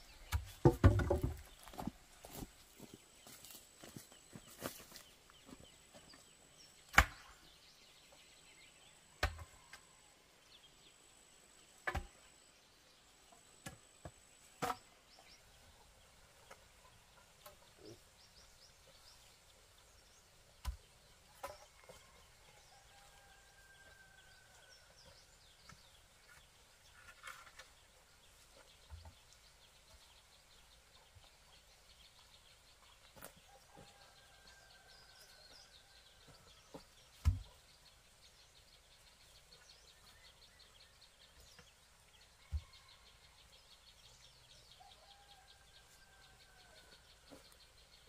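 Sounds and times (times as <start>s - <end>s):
wooden poles knocking: 0.3s - 1.9s.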